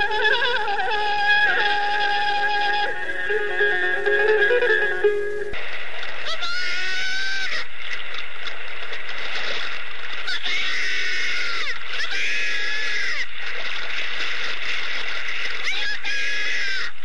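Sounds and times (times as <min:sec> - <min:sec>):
scream-like pitched cries: 0:00.0 - 0:05.6, 0:06.3 - 0:07.6, 0:10.3 - 0:13.3.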